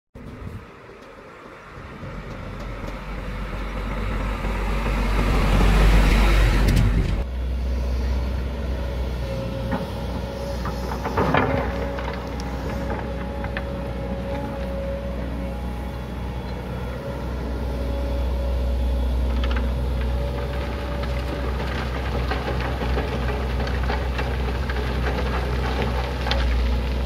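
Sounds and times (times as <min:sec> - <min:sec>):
dump truck approaching: 0:00.2 - 0:27.0
excavator diesel engine running: 0:00.2 - 0:27.0
bucket knocking and scraping rocks: 0:10.5 - 0:14.5, 0:19.3 - 0:27.0.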